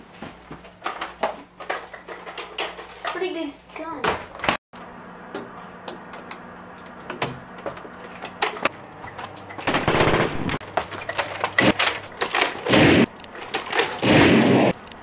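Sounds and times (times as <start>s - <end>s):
automatic rifle fire: 9.7s - 10.6s, 11.6s - 13.1s, 13.7s - 14.8s
clicks: 10.7s - 15.0s.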